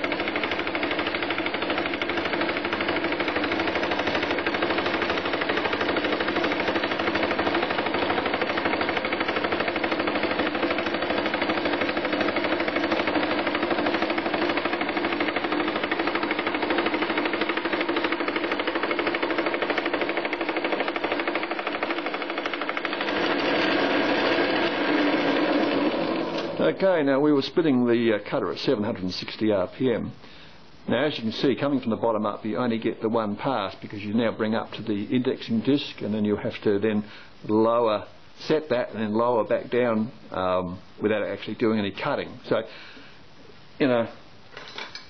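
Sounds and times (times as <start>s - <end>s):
fly cutter chattering through metal: 0.0s - 26.7s.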